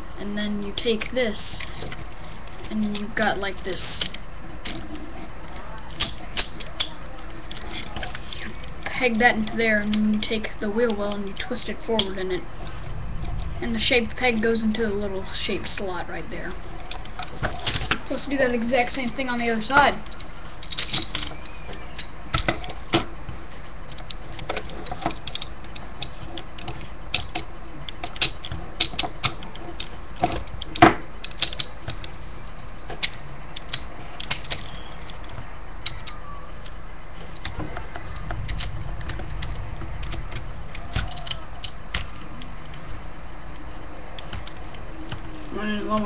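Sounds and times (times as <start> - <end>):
steady low hiss: 0.0 - 46.0
plastic toy clicks and snaps: 33.0 - 36.8, 37.4 - 42.2.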